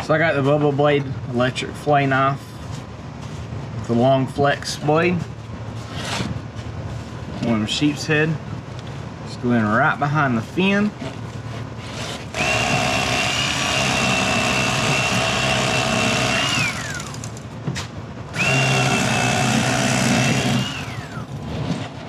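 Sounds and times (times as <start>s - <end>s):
electric fillet knife whining: 12.3s - 17.4s, 18.4s - 21.3s.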